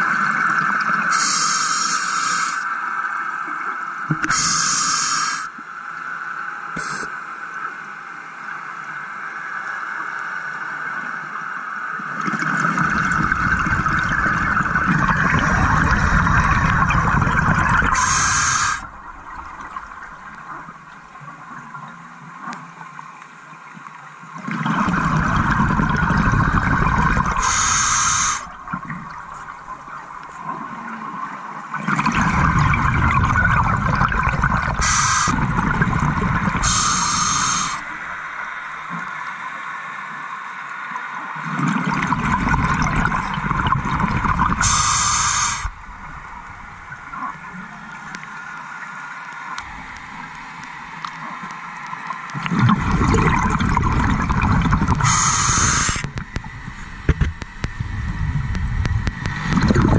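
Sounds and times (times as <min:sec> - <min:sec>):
underwater breath bubbles: 0:12.2 - 0:20.9, 0:24.5 - 0:30.5, 0:31.8 - 0:38.3, 0:41.5 - 0:47.4, 0:52.3 - 0:59.9.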